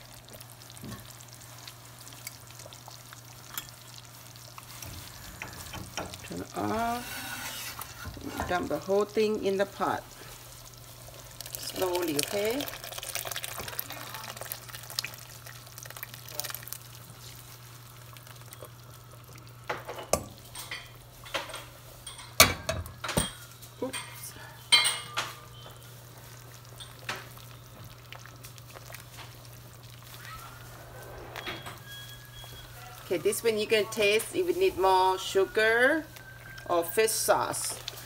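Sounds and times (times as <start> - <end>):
metal utensil scraping a pan: 5.3 - 8.9.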